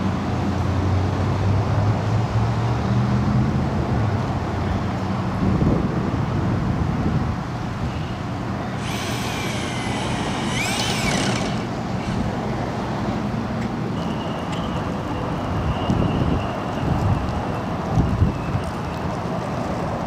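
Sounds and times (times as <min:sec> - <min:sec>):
low traffic rumble: 0:00.0 - 0:20.0
cordless drill whining: 0:08.7 - 0:12.3.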